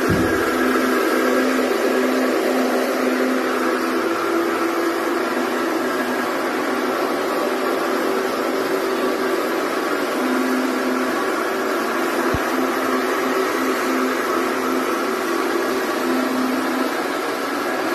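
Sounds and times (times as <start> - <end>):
brush hissing on carpet: 0.0 - 17.9
floor machine motor hum: 0.0 - 17.9.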